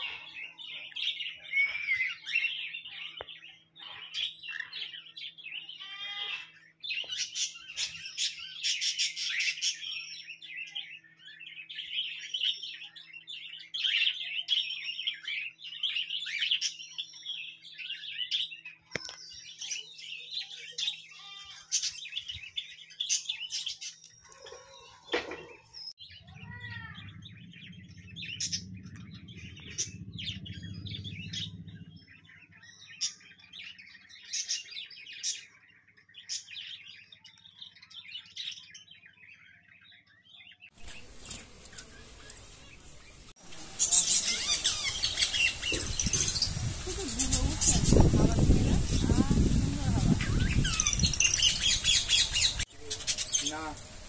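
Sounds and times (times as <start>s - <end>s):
parrots chirping and calling: 0.0s - 54.0s
low rumble: 26.0s - 33.0s.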